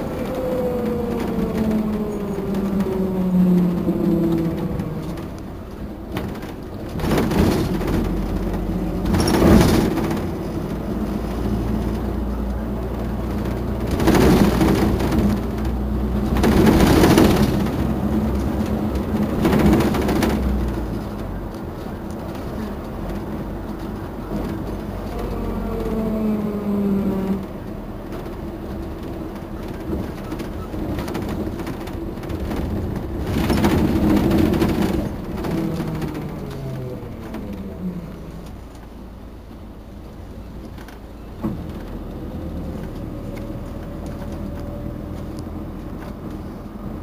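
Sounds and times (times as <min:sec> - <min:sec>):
diesel bus engine idling: 0:00.0 - 0:47.0.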